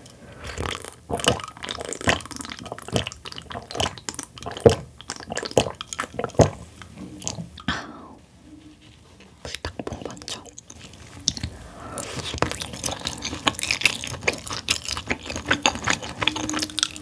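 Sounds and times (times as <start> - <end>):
person gulping a drink: 0.0 - 8.1, 9.6 - 17.0.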